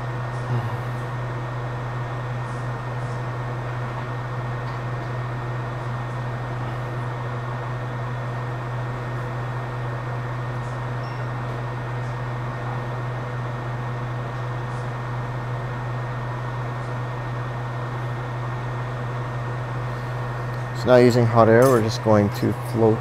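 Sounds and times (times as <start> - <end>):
low drone: 0.0 - 1.2
fan humming: 0.0 - 23.0.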